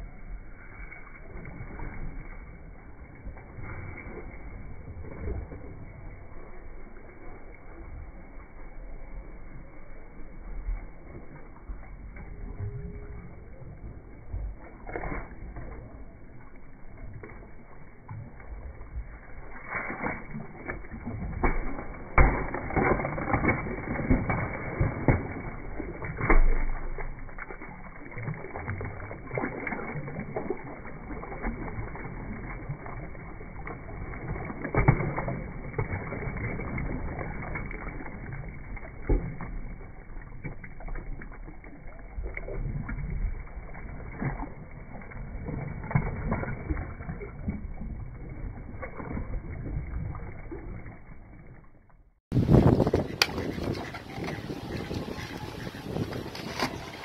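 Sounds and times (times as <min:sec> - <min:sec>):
hippopotamus chewing watermelon: 0:11.2 - 0:39.0, 0:52.4 - 0:57.0.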